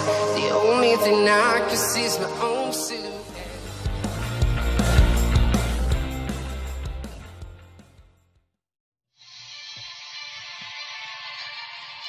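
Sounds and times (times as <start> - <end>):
song with deep bass and drums: 0.0 - 8.0.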